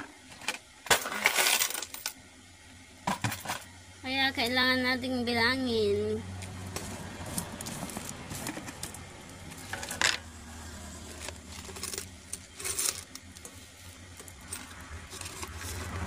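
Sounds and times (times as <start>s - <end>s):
coins clinking: 0.9s - 2.2s, 6.8s - 10.2s, 11.0s - 13.6s, 14.2s - 16.0s.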